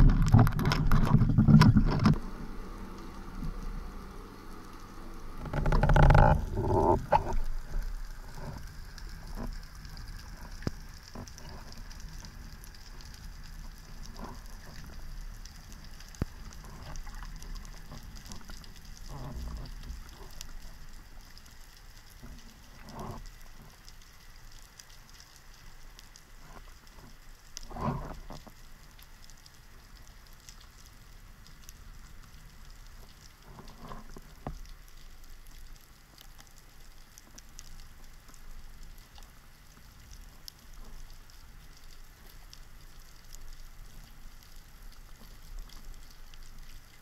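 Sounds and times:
rushing water and knocks: 0.0s - 2.4s, 5.3s - 12.4s
underwater crackle of clicks: 0.0s - 47.0s.

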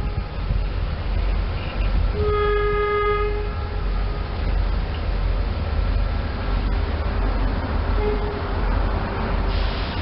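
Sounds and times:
train horn blast: 0.0s - 0.6s, 2.2s - 4.2s, 7.9s - 8.6s
low rumble of approaching train: 0.0s - 10.0s.

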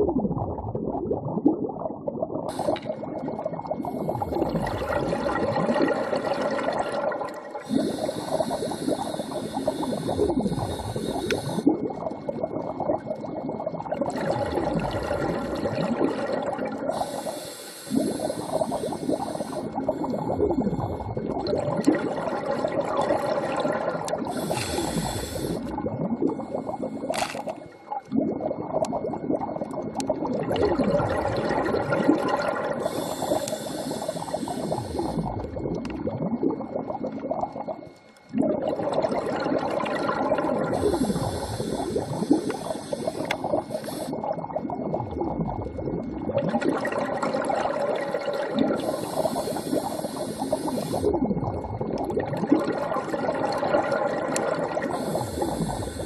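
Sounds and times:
exhaled bubbles gurgling: 0.0s - 56.0s
diver breathing through regulator: 7.6s - 11.7s, 16.9s - 20.1s, 24.2s - 25.7s, 32.8s - 35.4s, 40.7s - 44.2s, 48.7s - 51.2s, 54.8s - 56.0s.

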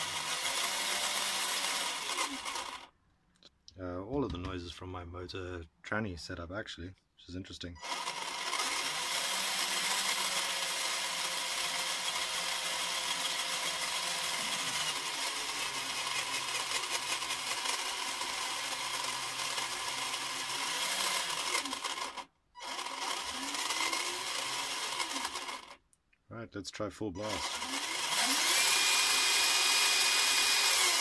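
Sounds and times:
toy motor gear whine and rattle: 0.0s - 2.9s, 7.8s - 25.8s, 27.2s - 31.0s.

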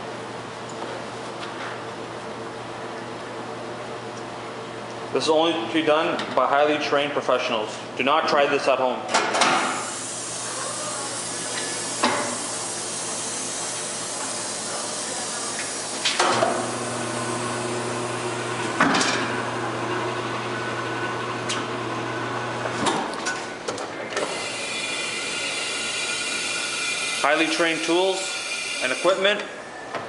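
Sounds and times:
tire changer motor hum: 9.8s - 23.2s, 24.1s - 29.2s.

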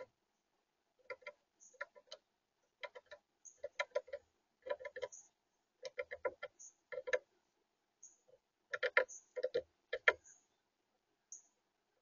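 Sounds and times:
bird pecking on plastic feeder: 1.0s - 7.3s, 8.7s - 10.2s.

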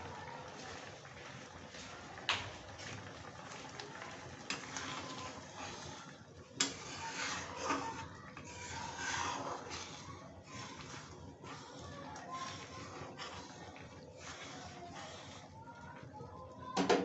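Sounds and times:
lentils simmering and bubbling: 0.0s - 17.0s
ladle stirring and scraping pan: 2.8s - 16.1s.

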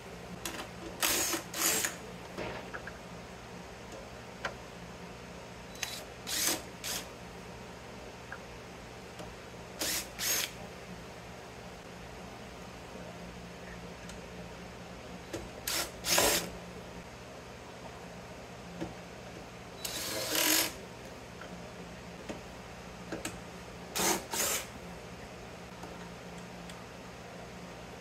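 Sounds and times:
cordless drill whirring: 1.0s - 2.0s, 5.8s - 7.1s, 9.8s - 10.6s, 15.7s - 16.5s, 19.8s - 20.8s, 24.0s - 24.7s.

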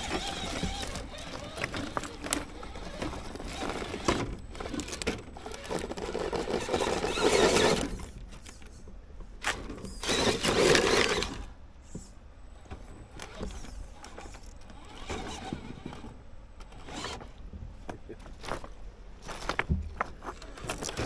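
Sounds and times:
pebbles crunching under tyres: 0.0s - 11.6s, 18.2s - 21.0s.

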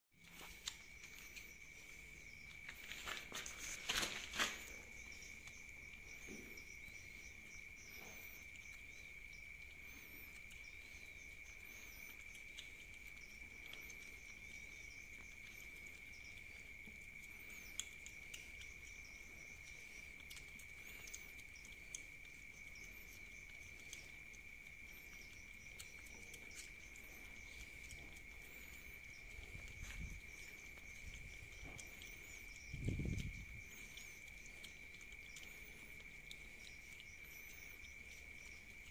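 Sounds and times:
cats eating and licking: 0.1s - 38.9s
night insects trilling: 0.2s - 38.9s
pouch crinkling: 2.7s - 5.0s.

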